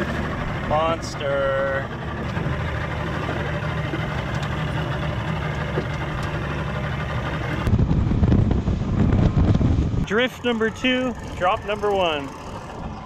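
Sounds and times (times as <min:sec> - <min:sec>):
boat engine idling: 0:00.0 - 0:13.0
gusty wind rumble on microphone: 0:07.6 - 0:11.5.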